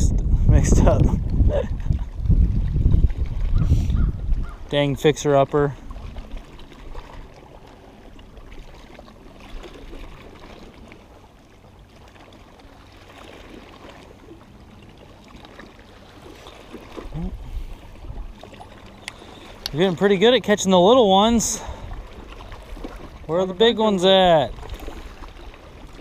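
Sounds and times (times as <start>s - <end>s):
low rumbles on microphone: 0.0s - 4.8s, 17.1s - 18.4s
water lapping against boat hull: 0.0s - 26.0s.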